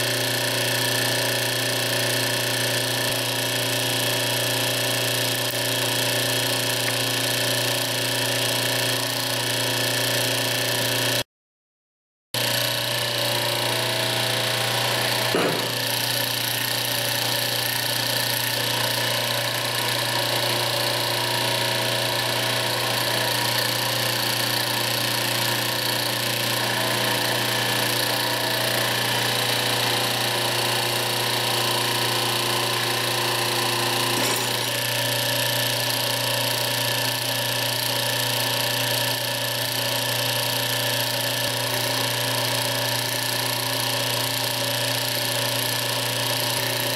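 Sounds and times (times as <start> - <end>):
electric machine hum: 12.4 - 46.9.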